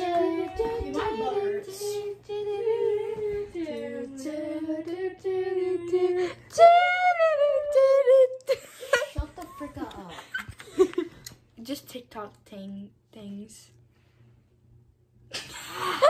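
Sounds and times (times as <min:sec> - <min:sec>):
girl singing: 0:00.0 - 0:08.4.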